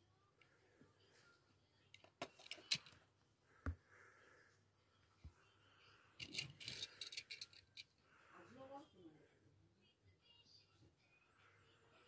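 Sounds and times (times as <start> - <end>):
toy car clicks and taps: 6.2 - 7.8.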